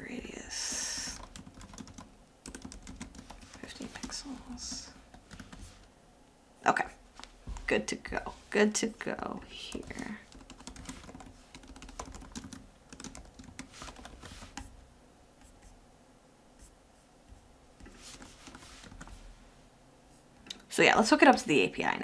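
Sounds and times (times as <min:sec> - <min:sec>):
computer keyboard typing: 0:01.0 - 0:05.7, 0:09.6 - 0:14.7, 0:17.9 - 0:19.2.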